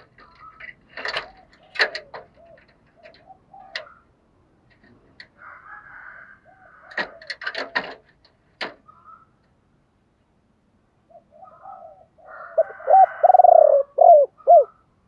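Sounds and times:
clicks and knocks in wire cage: 0:00.0 - 0:05.4, 0:06.8 - 0:08.9.

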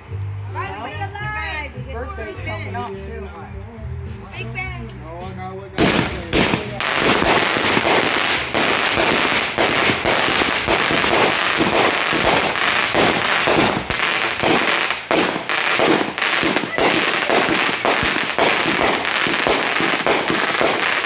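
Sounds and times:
dense fireworks crackle: 0:05.8 - 0:21.0
fireworks popping: 0:05.8 - 0:21.0.

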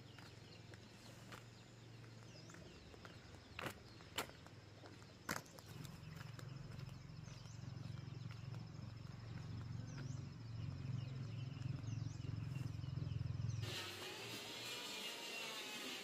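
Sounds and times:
high insect-like drone: 0:13.6 - 0:16.0.

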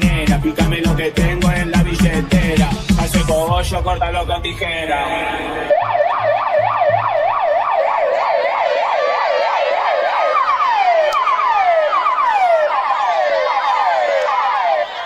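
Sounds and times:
bass thumps: 0:00.0 - 0:05.6
electronic siren sweeps: 0:05.1 - 0:15.0.

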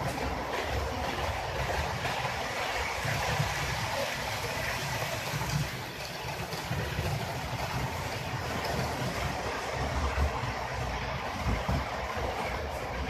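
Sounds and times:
model train wheels on track: 0:00.0 - 0:13.0.

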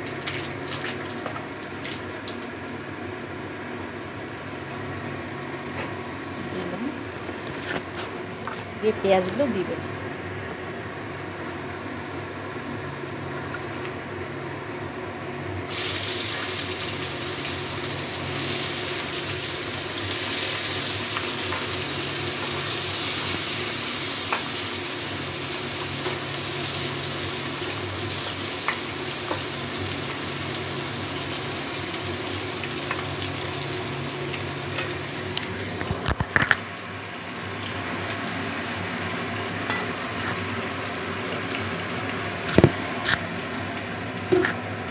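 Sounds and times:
onions sizzling in hot oil: 0:15.7 - 0:44.4.

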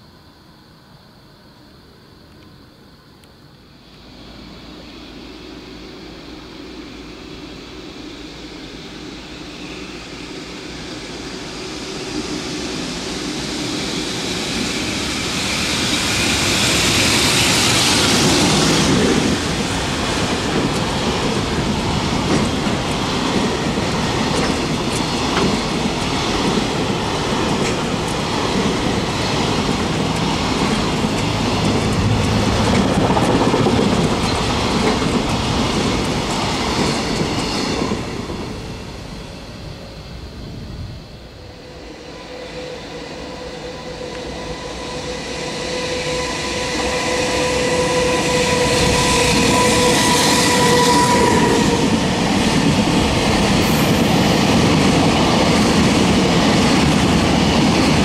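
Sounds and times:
electric locomotive passing: 0:00.0 - 0:58.0
wheels clattering on rails: 0:16.3 - 0:38.6.

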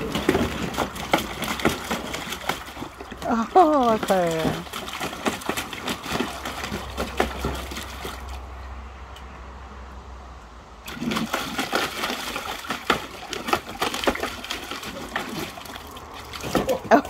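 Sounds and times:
puppy splashing in water: 0:00.0 - 0:08.6, 0:10.8 - 0:17.0.

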